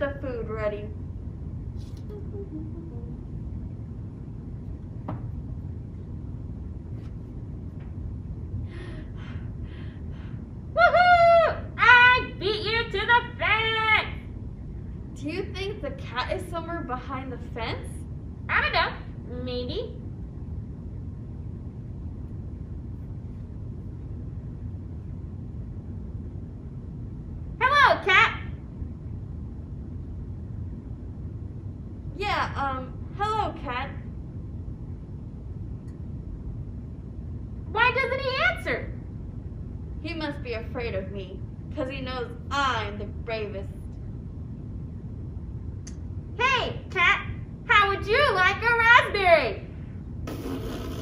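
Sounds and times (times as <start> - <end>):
low room rumble: 0.0 - 51.0
knock: 5.0 - 5.3
soft rustles: 6.8 - 8.0.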